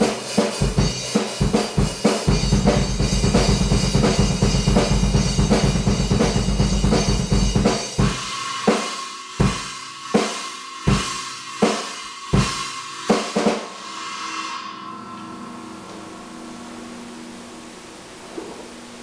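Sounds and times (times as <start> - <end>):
cymbals ringing: 0.0 - 19.0.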